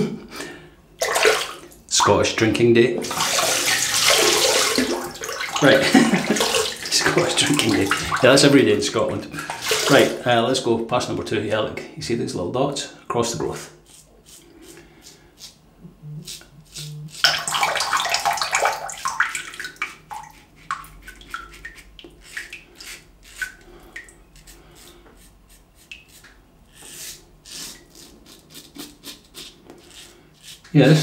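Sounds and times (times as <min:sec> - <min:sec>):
razor scraping stubble: 0:13.8 - 0:17.4, 0:24.4 - 0:31.0.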